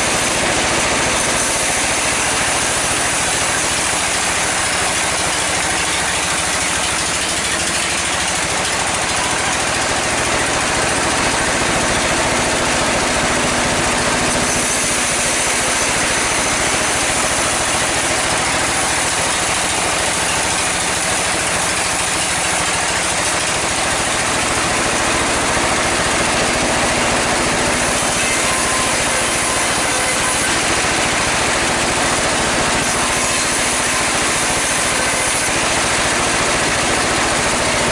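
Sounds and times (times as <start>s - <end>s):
sawmill saw cutting timber: 0.0s - 37.9s.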